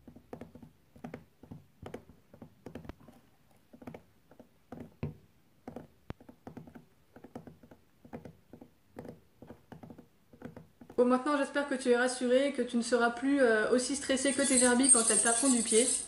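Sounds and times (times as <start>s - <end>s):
gerbils drumming feet: 0.0s - 11.0s.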